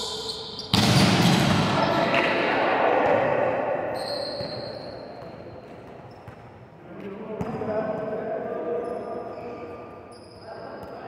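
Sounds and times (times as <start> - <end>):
volleyball hitting in gym: 0.5 - 9.0.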